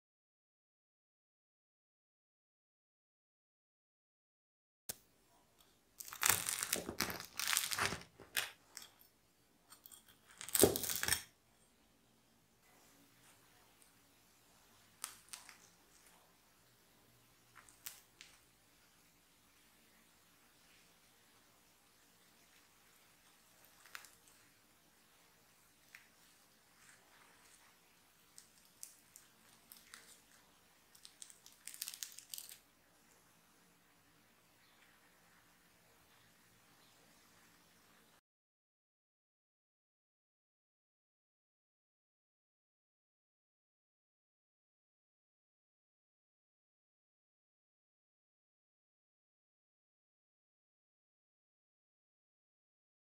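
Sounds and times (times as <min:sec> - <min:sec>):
bread crust crackling: 0:06.0 - 0:09.0, 0:09.7 - 0:11.4, 0:14.5 - 0:16.4, 0:17.4 - 0:18.5, 0:22.4 - 0:33.2.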